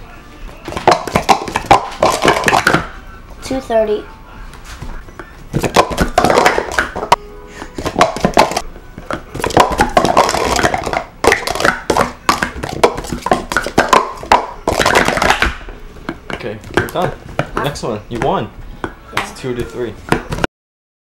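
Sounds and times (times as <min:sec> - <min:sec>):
plastic cups clicking and clattering: 0:00.7 - 0:02.9, 0:05.6 - 0:07.2, 0:07.8 - 0:19.0.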